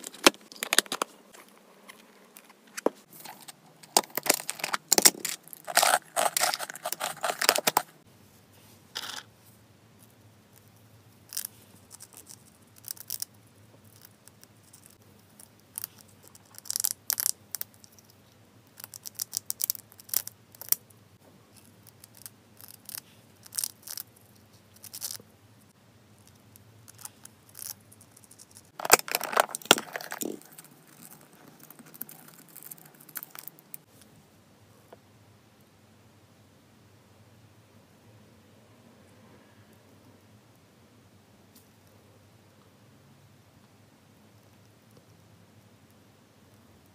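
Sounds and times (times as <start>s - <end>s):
hamster nibbling crunches: 3.1s - 8.0s, 26.2s - 33.9s
fruit cubes rattling in plastic container: 4.0s - 7.9s.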